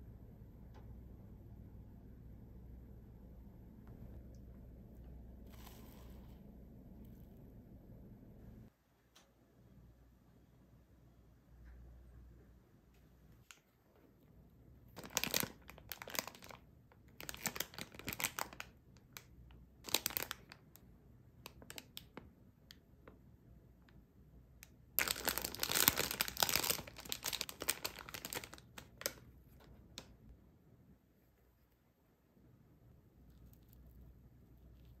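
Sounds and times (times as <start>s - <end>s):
plastic wrapper crinkling: 14.9s - 19.3s, 19.9s - 20.8s, 25.0s - 30.1s.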